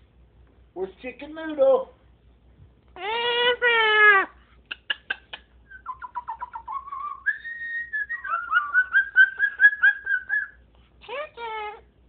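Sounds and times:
cockatoo whistling: 5.7s - 10.6s.

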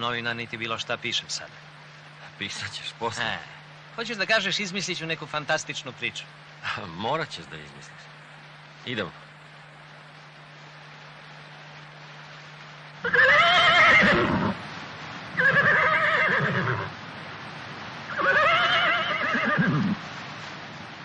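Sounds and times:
horse whinnying: 13.0s - 14.6s, 15.4s - 16.9s, 18.1s - 20.0s.

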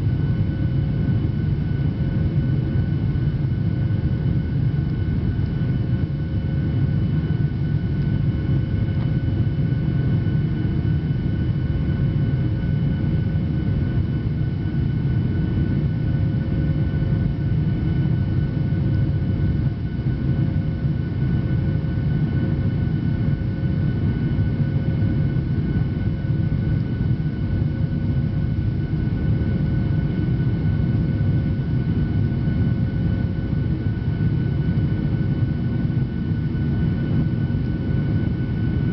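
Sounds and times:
jet engines droning in cabin: 0.0s - 38.9s.

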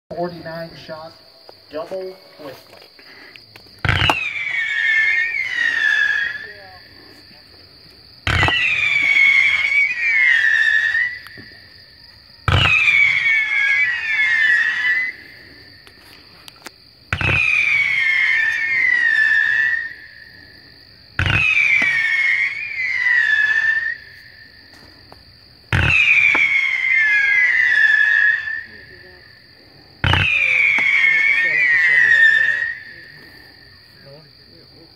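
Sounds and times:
firework whistles falling in pitch: 3.8s - 6.8s, 8.2s - 16.2s, 17.1s - 20.4s, 21.2s - 25.0s, 25.7s - 29.2s, 30.0s - 34.2s
firework launch thumps: 8.3s - 9.2s.

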